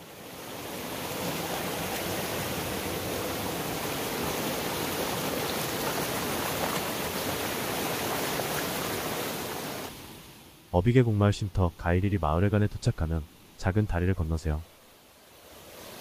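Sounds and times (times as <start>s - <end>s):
stream rushing over boulders: 0.0s - 10.7s, 14.7s - 16.0s.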